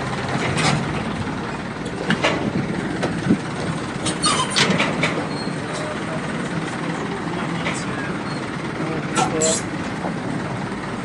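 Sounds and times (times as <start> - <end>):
boat engine idling: 0.0 - 11.0
knocks and clatter: 0.2 - 6.0.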